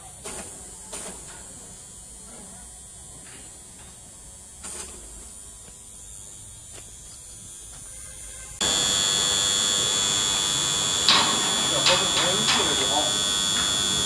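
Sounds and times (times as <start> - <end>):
electric hoist buzzing and whining: 8.6 - 14.0.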